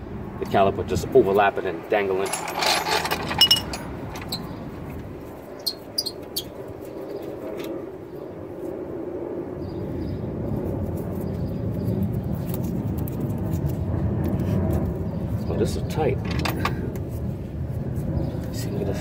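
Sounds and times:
low vehicle rumble: 0.0s - 5.5s.

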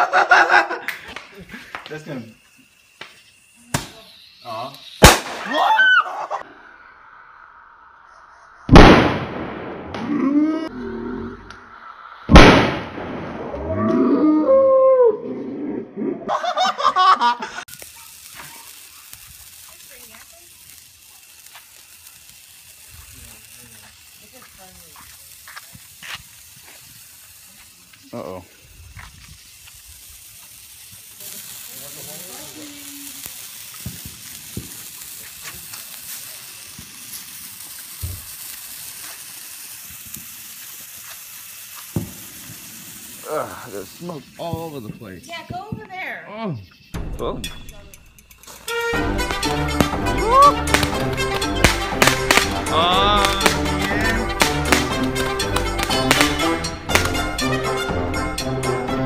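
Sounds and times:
firework crackles: 0.0s - 13.8s, 16.3s - 59.0s
firework fountain hissing: 0.0s - 13.8s, 16.3s - 59.0s
firework bang: 3.0s - 6.5s, 8.6s - 10.2s, 11.5s - 13.8s, 33.2s - 38.5s, 41.8s - 43.3s, 48.5s - 57.6s
long wavering cries: 5.4s - 8.5s, 10.0s - 11.9s, 13.5s - 17.4s, 50.0s - 50.8s
low pop: 8.7s - 10.2s, 11.4s - 14.0s.

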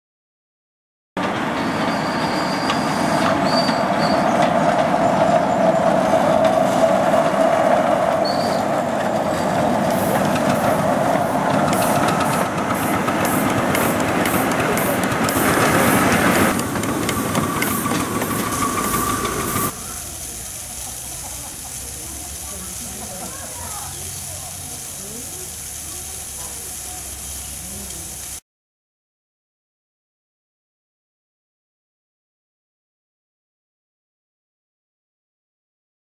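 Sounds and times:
train wheels rolling: 1.2s - 28.0s
wheels clicking over rail joints: 1.2s - 28.2s
steam hissing: 1.3s - 28.4s.

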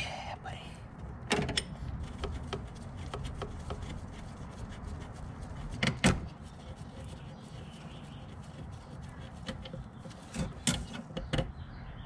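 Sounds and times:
hand tools clicking and tapping on metal: 8.3s - 11.5s.

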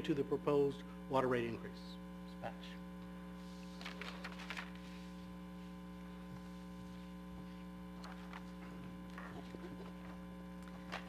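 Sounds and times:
electrical mains hum: 0.0s - 11.0s
paper rustling and clicking: 3.6s - 5.2s, 8.0s - 11.0s.

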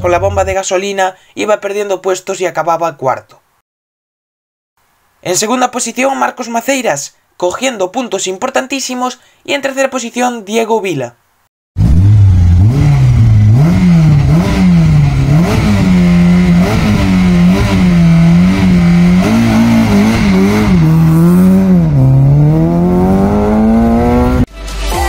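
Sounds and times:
rally car engine revving: 11.8s - 24.5s.

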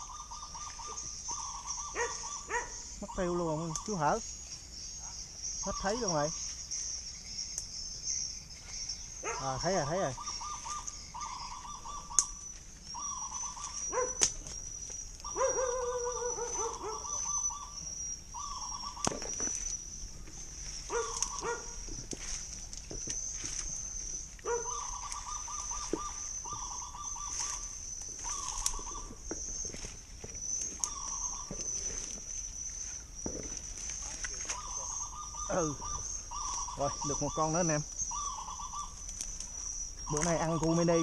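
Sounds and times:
high-pitched insect drone: 0.0s - 41.0s
rustling and snapping twigs: 3.6s - 4.6s, 5.9s - 7.8s, 9.8s - 17.4s, 18.4s - 35.2s, 35.9s - 41.0s
short pitched animal calls: 9.2s - 14.3s, 24.4s - 29.3s.

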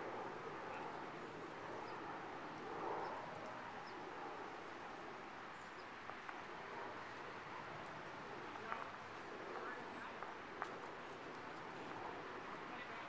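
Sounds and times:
outdoor background ambience: 0.0s - 13.0s.

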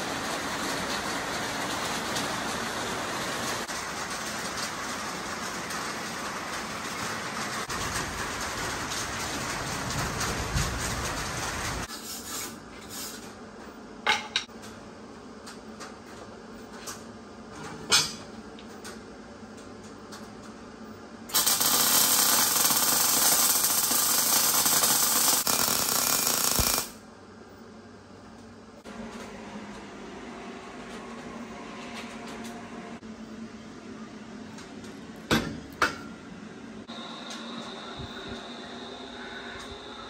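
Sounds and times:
arc welding crackling hiss: 21.3s - 27.0s.

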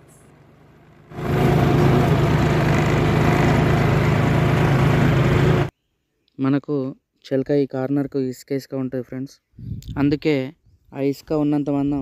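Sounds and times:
tractor diesel engine under load: 0.0s - 5.7s.

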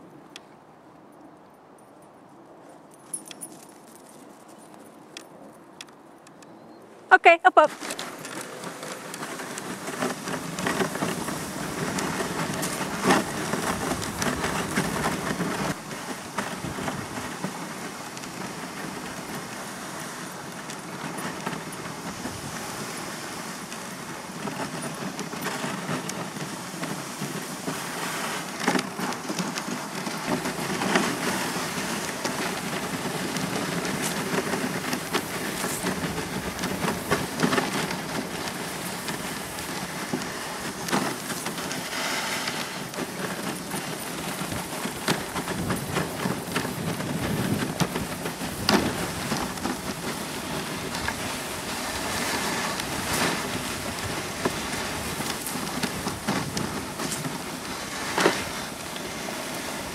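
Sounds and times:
sled runners crunching on snow: 2.3s - 6.1s, 7.6s - 59.9s.

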